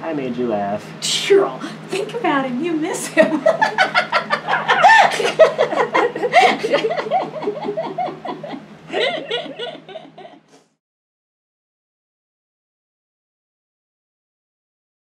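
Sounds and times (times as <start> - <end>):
woman laughing: 3.0 - 10.6.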